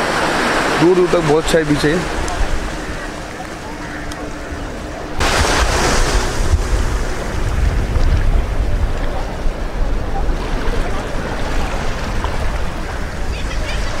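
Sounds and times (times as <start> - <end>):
surf washing at shore: 0.0 - 14.0
wind buffeting microphone: 0.0 - 14.0.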